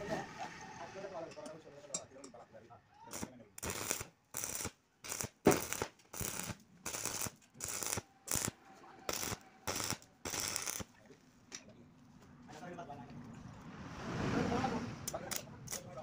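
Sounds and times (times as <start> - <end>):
welding arc crackling: 3.1 - 10.9.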